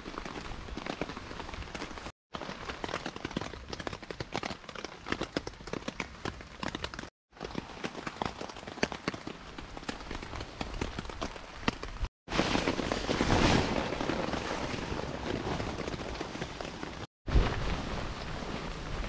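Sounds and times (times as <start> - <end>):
raindrops ticking on a tarp: 0.0 - 19.0
fabric ground sheet rustling: 12.3 - 19.0.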